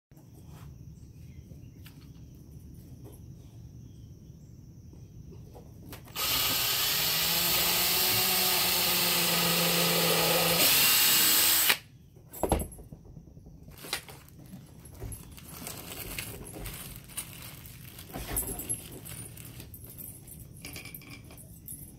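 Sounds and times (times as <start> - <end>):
drill boring into wood: 6.1 - 11.8.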